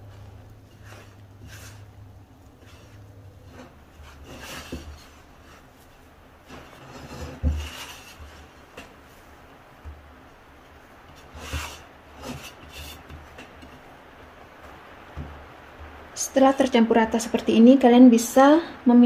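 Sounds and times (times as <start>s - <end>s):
dough scraping against bowl: 0.0s - 9.3s, 11.0s - 14.0s
soft dough thumps: 0.0s - 17.2s.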